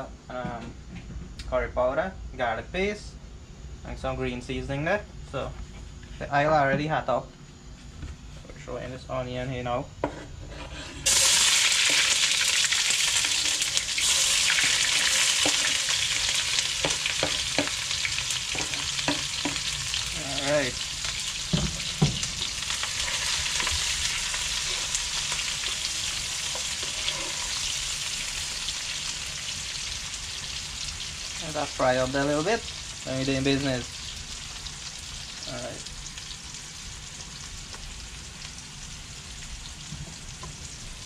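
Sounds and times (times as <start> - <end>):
onion sizzling in hot oil: 10.7 - 41.0.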